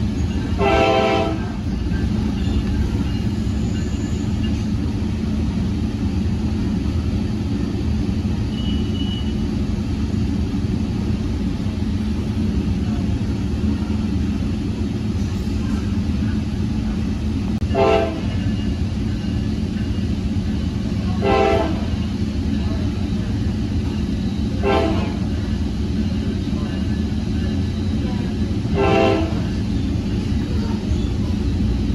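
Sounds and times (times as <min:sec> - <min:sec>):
train rumbling on track: 0:00.0 - 0:31.9
train air horn blast: 0:00.6 - 0:01.6, 0:17.7 - 0:18.3, 0:21.2 - 0:22.0, 0:24.6 - 0:25.2, 0:28.7 - 0:29.5.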